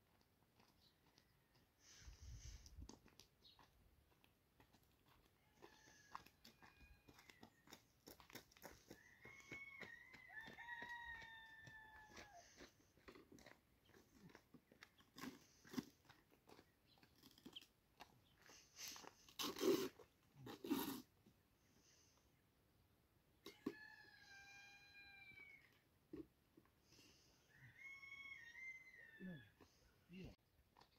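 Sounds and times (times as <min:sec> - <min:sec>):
rooster crowing: 0:05.4 - 0:07.8, 0:08.9 - 0:12.7, 0:23.5 - 0:25.8, 0:27.5 - 0:29.6.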